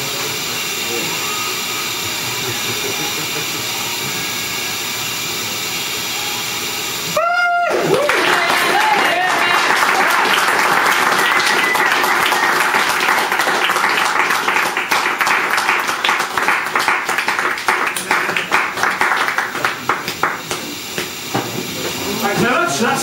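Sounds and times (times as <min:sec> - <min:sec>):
audience applauding: 0:07.2 - 0:21.3.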